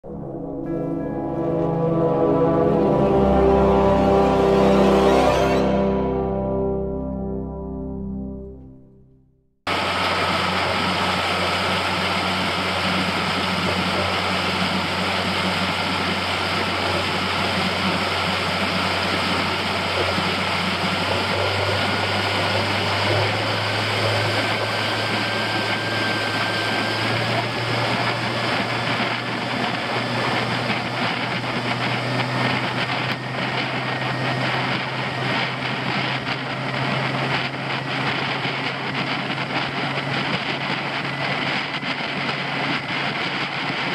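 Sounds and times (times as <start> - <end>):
outboard motor droning: 0.0 - 8.8, 9.7 - 43.9
rushing wake water: 9.7 - 43.9
wind on microphone: 9.8 - 43.9.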